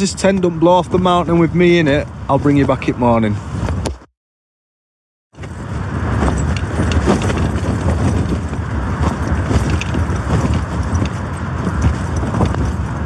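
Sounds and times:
tent fabric flapping and rattling: 0.0 - 4.1, 5.3 - 13.0
storm wind rumbling: 5.4 - 13.0.

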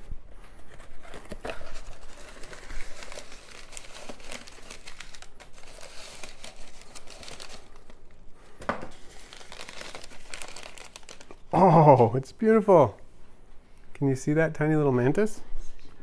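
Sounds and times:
paper crinkling and rustling: 0.0 - 8.0, 8.9 - 11.5.

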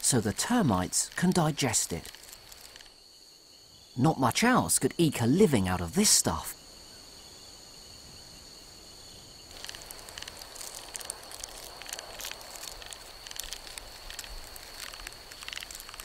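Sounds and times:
termites crackling and rustling: 0.0 - 3.2, 9.4 - 16.0
high insect drone: 0.0 - 16.0.

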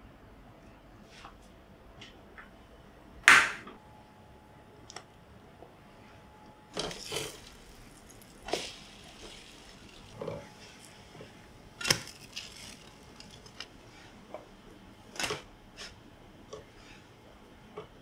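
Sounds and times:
loud sharp clack: 3.3 - 3.7.

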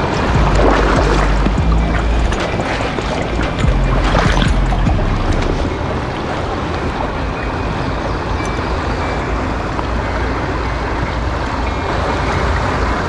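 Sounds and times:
stream flowing over stones: 0.0 - 9.4.

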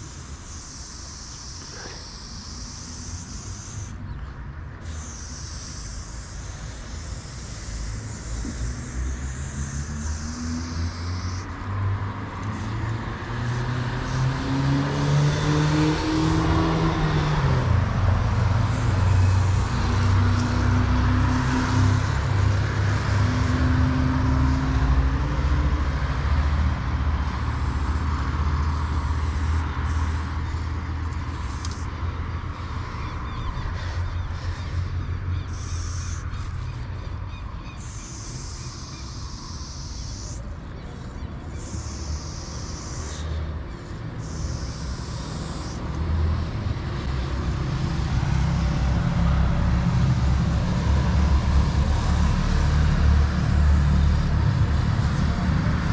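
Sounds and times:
aerosol spray can hissing: 0.0 - 4.1, 4.8 - 16.8, 18.2 - 24.8, 25.7 - 32.8, 35.5 - 36.7, 37.8 - 40.4, 41.0 - 46.4.

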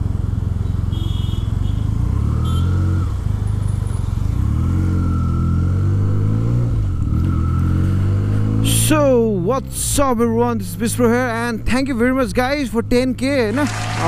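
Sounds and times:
motorcycle engine accelerating: 1.9 - 9.8, 13.4 - 14.0.

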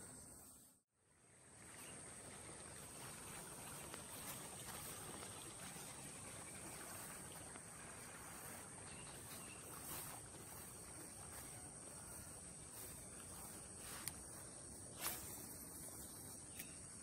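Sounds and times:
high-pitched insect chorus: 6.4 - 17.0.

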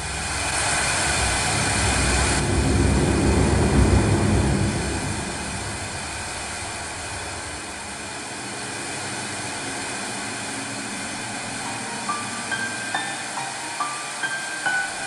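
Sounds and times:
dark horror drone: 0.0 - 15.0
low rumble: 0.1 - 8.1.

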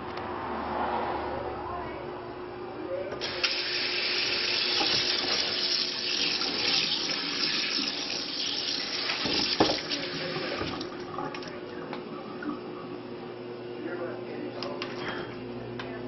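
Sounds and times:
faucet water splashing into sink: 3.2 - 12.0.

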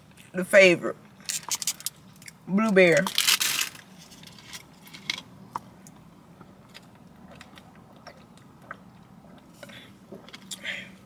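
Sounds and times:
faint steady hum: 0.0 - 11.0
foil wrapper crinkling: 3.0 - 5.1.

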